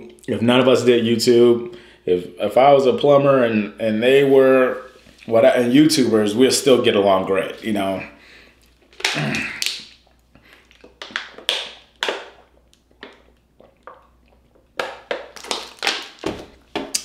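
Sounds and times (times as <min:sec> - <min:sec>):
eating clicks and crunches: 0:08.6 - 0:16.3.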